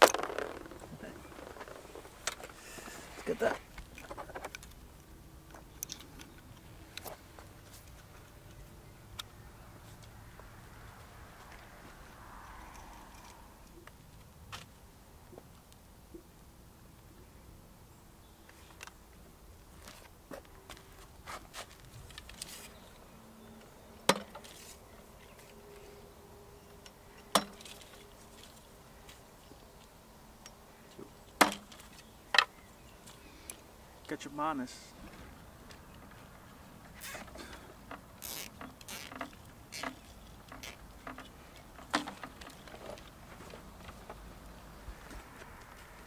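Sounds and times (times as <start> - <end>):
wooden sticks knocking: 0.0 - 2.0.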